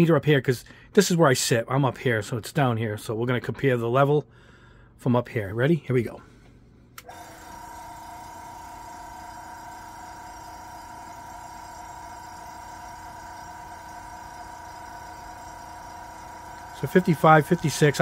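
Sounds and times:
airbrush compressor humming: 7.0s - 18.0s.

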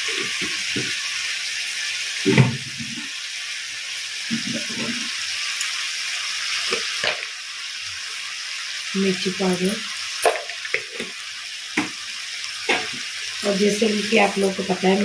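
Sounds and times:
sauce simmering and sizzling: 0.0s - 15.0s
knocks on pan: 11.8s - 12.0s.

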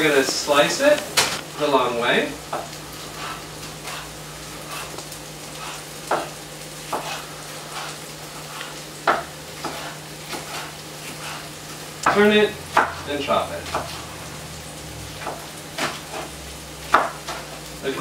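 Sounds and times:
knife tapping cutting board: 9.0s - 10.5s, 12.0s - 13.0s, 16.9s - 17.4s.

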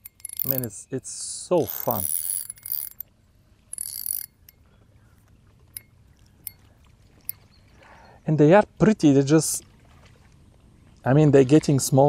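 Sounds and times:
faint reel clicks: 0.0s - 0.7s, 1.6s - 3.0s, 3.7s - 4.6s
fishing reel whirring: 0.0s - 0.8s, 1.6s - 3.1s, 3.7s - 4.6s.

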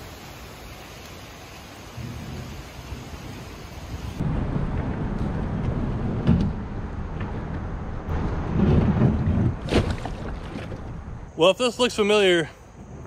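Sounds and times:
wind: 0.0s - 13.0s
low rumble of thunder: 1.9s - 11.3s
kayak scraping on concrete ramp: 8.2s - 11.0s.

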